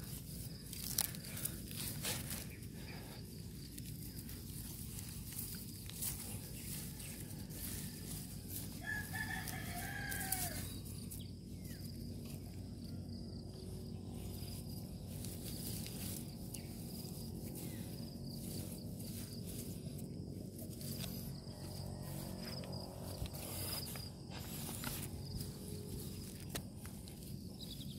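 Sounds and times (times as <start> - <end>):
low background rumble: 0.0 - 27.9
rooster crowing: 6.8 - 10.9, 21.5 - 22.9.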